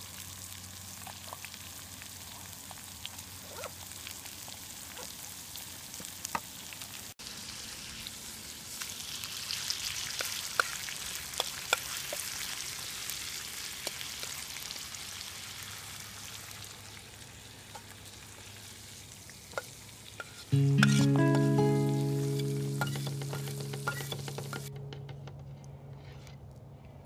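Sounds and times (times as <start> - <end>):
fish sizzling in oil: 0.0 - 24.7
fork scraping a pan: 20.2 - 21.2, 22.8 - 24.7.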